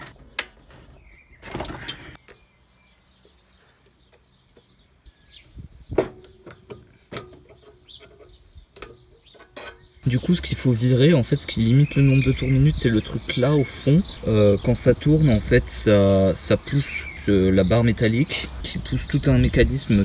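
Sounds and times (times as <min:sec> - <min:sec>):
birds chirping faintly: 0:00.0 - 0:20.0
clicks and knocks of tools and parts: 0:06.0 - 0:10.0.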